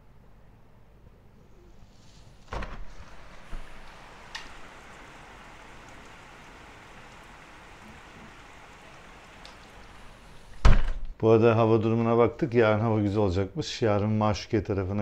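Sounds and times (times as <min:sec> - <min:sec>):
heavy rain pouring: 0:03.0 - 0:10.6.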